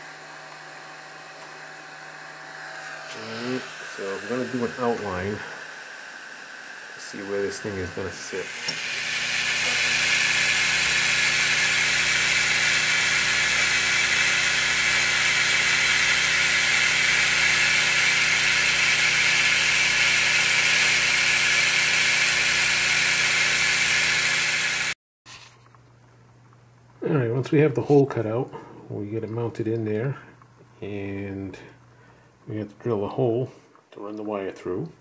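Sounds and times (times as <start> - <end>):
laser engraver whirring hiss: 1.6 - 25.0.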